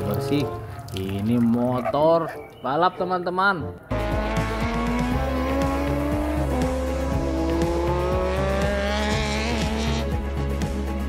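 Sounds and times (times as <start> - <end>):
racing motorcycle engine revving: 3.9 - 10.1
background music with a beat: 3.9 - 11.0.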